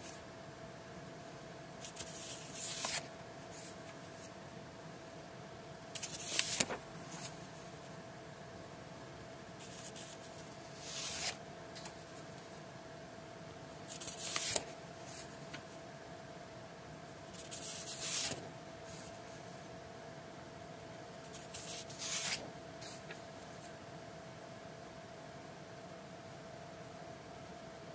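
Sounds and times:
faint steady hum: 0.0 - 27.9
paper rustling: 1.8 - 4.3, 6.0 - 7.5, 9.6 - 12.6, 13.9 - 15.6, 17.4 - 19.2, 21.3 - 23.3.

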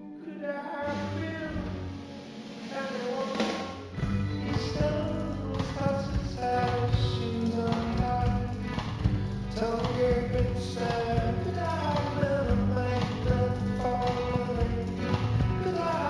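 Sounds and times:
tapping beat: 3.4 - 16.0.

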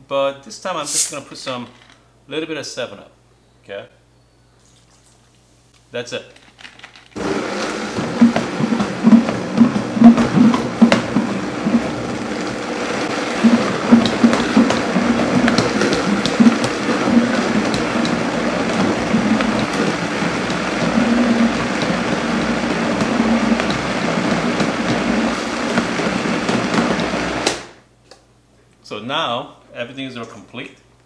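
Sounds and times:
food pieces knocking in blender: 7.2 - 27.7
blender whirring: 7.2 - 27.8.

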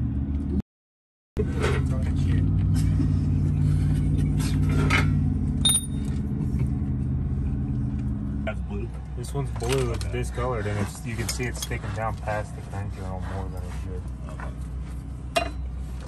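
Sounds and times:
metallic clinks of tools: 5.6 - 6.1.

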